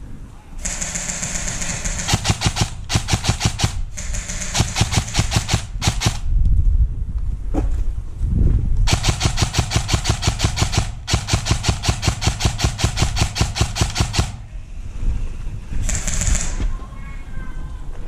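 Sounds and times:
airsoft gun firing rapidly: 0:00.6 - 0:06.3, 0:08.9 - 0:14.5, 0:15.8 - 0:16.6.

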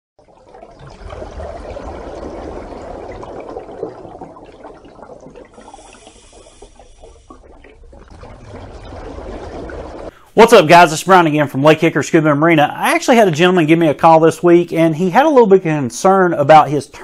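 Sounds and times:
rushing churning water: 0:00.6 - 0:10.1.

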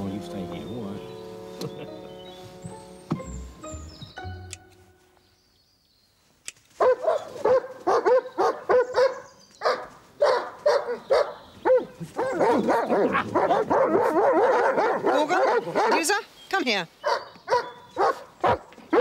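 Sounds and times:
dogs barking: 0:06.8 - 0:16.2, 0:17.0 - 0:19.0.

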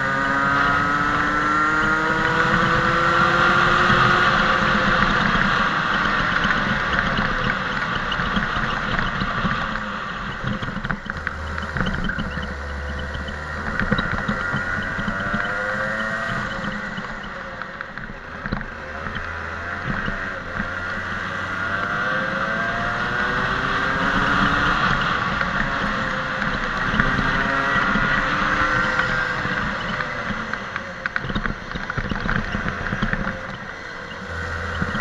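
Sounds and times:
kart engine revving: 0:00.0 - 0:35.0.

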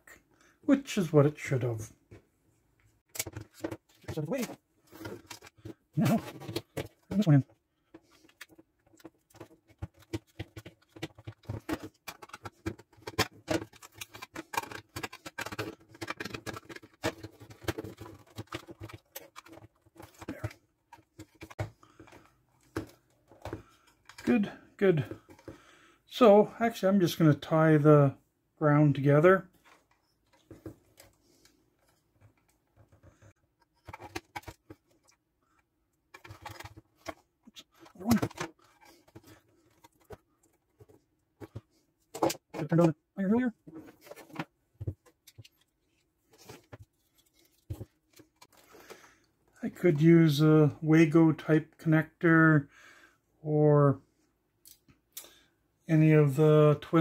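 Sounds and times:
plastic clicks and knocks: 0:03.1 - 0:24.3, 0:31.8 - 0:35.2, 0:36.1 - 0:42.9.

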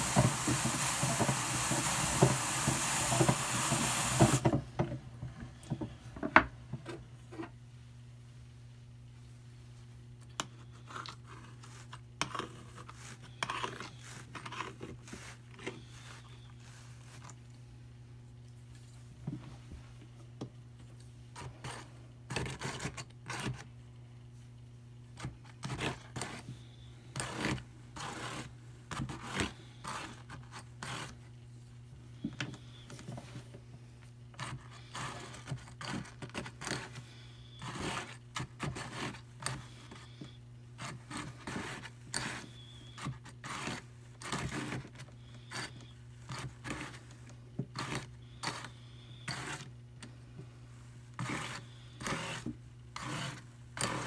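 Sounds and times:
metal pick scraping wire cloth: 0:47.7 - 0:49.7, 0:51.2 - 0:54.0.

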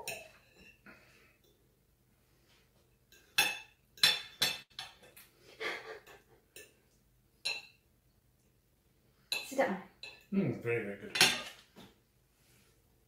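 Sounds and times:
cutlery clinking and scraping on plate: 0:00.0 - 0:00.8, 0:03.1 - 0:05.3, 0:06.1 - 0:06.8, 0:07.4 - 0:07.8, 0:09.3 - 0:10.3, 0:11.1 - 0:11.8.

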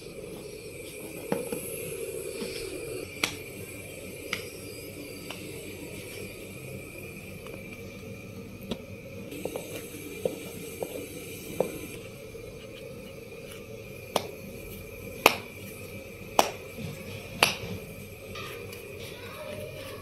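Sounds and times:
faint steady high hum: 0:00.0 - 0:20.0
hands patting dough: 0:08.6 - 0:20.0.

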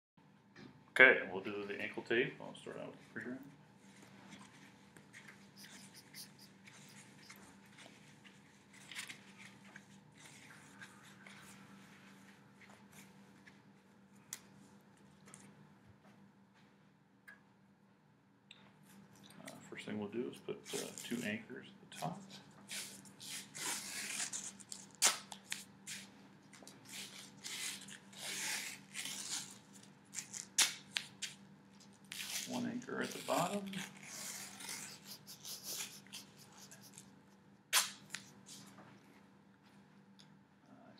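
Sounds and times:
tape pulled off roll rasping: 0:22.7 - 0:32.5
tape tearing snaps: 0:23.6 - 0:27.9, 0:28.6 - 0:31.4, 0:37.7 - 0:38.3.

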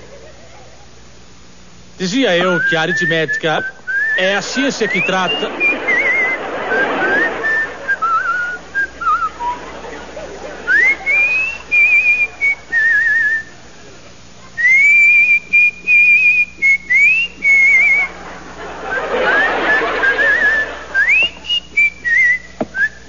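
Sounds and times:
person whistling: 0:02.4 - 0:09.6, 0:10.7 - 0:13.5, 0:14.6 - 0:18.1, 0:20.0 - 0:23.0.

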